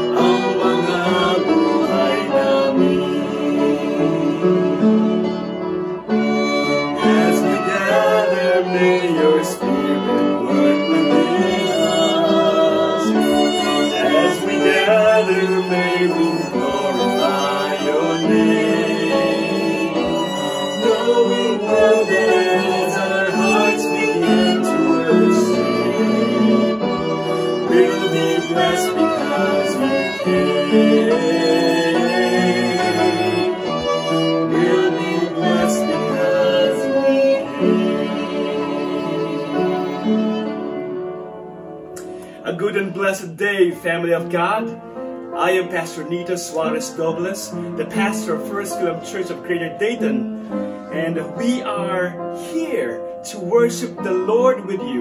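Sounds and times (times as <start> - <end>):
man and girl singing: 0.0 - 4.8, 7.0 - 26.9, 27.6 - 33.6, 34.4 - 40.0
cello: 0.0 - 43.0, 43.8 - 55.0
violin: 0.0 - 55.0.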